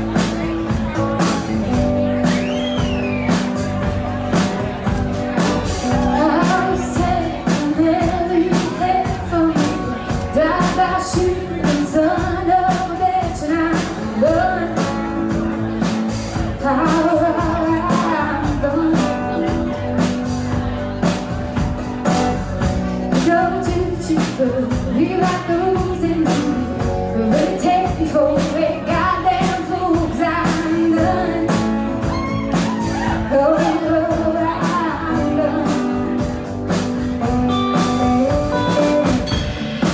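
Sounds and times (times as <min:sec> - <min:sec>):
bass guitar: 0:00.0 - 0:39.9
woman singing: 0:05.9 - 0:15.2, 0:16.5 - 0:19.9, 0:23.1 - 0:36.4.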